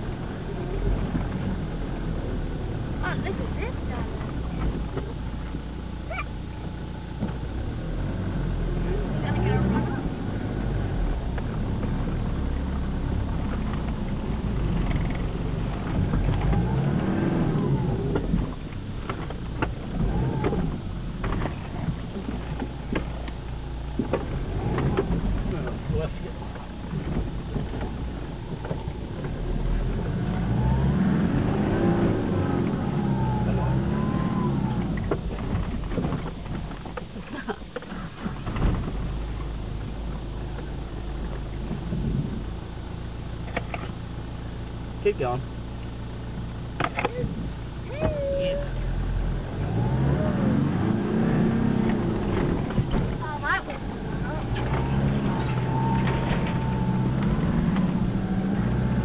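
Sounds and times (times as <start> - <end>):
knocks and rattles over bumps: 0.0 - 7.8, 11.0 - 30.5, 33.8 - 44.2, 46.3 - 48.4, 49.1 - 59.0
engine heard from inside cabin: 0.0 - 59.0
knocks and rattles: 18.2 - 29.4.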